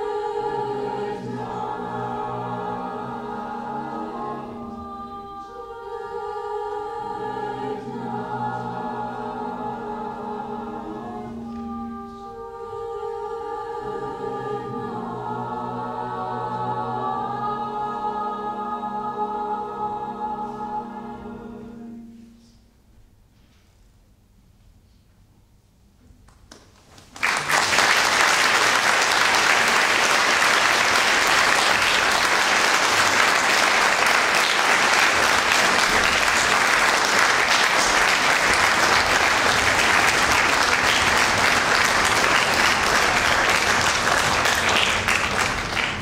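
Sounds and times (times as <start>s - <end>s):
audience applause: 27.0s - 46.0s.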